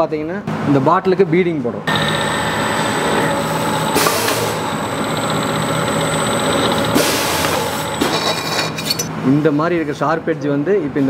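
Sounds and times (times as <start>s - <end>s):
beading machine motor hum: 1.9s - 9.1s.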